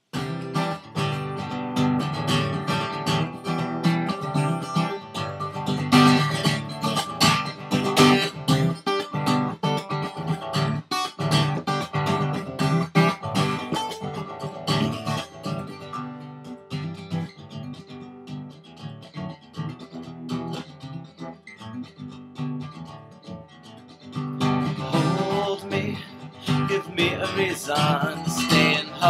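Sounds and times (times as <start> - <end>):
acoustic guitar strumming chords: 0.0 - 29.0.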